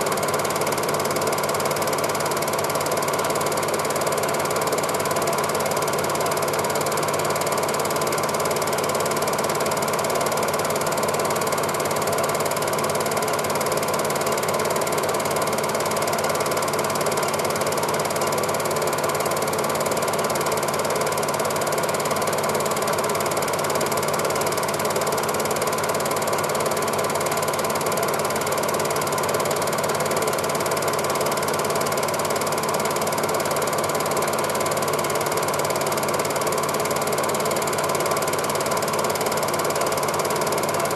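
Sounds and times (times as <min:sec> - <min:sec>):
film projector clattering: 0:00.0 - 0:40.9.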